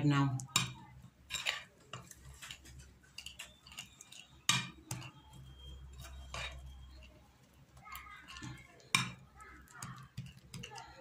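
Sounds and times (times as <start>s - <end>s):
spoon clinking on ceramic plate: 0.4s - 11.0s.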